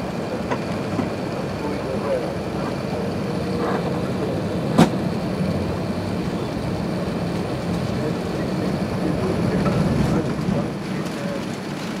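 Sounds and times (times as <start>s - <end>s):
aircraft engine and rolling noise: 0.0s - 12.0s.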